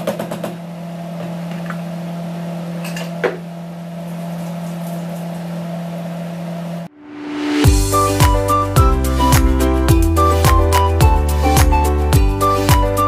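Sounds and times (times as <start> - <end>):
kitchen appliance hum: 0.0 - 7.9.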